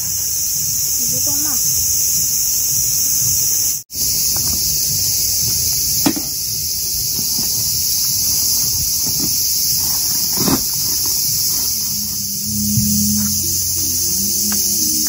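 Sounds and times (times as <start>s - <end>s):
cicadas buzzing: 0.0s - 15.0s.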